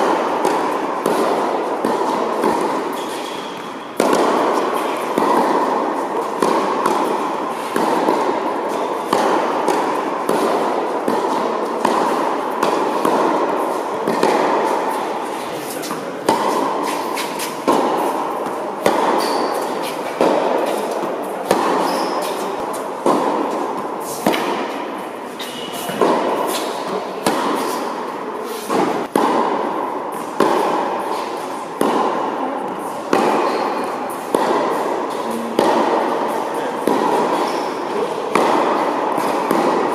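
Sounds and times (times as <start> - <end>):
tennis balls bouncing on court: 0.0 - 39.9
tennis balls struck by rackets: 0.0 - 39.9.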